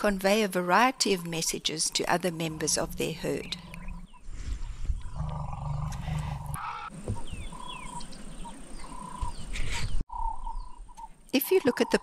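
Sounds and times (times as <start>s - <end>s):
birds chirping: 0.0s - 12.0s
elephant low rumble: 1.3s - 10.8s.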